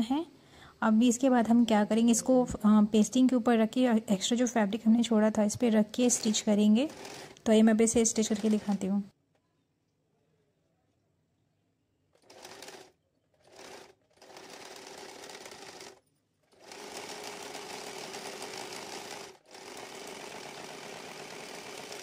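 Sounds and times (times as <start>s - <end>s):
sewing machine motor humming: 6.0s - 8.8s, 12.2s - 22.0s.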